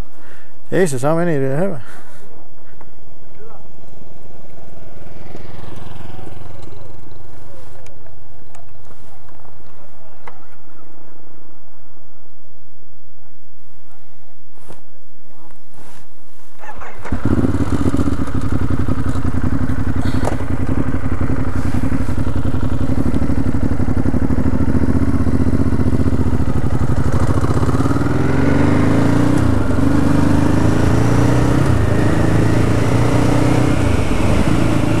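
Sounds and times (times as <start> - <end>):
motorcycle engine revving: 3.5 - 7.9, 16.6 - 35.0.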